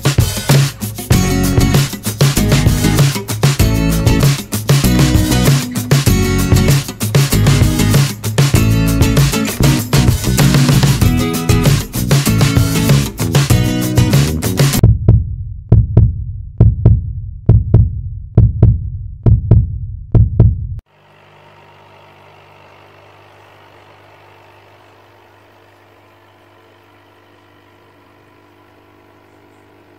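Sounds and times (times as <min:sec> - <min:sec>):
deep heartbeat-like double thumps: 0:14.7 - 0:20.8
aquarium pump humming: 0:20.9 - 0:29.9.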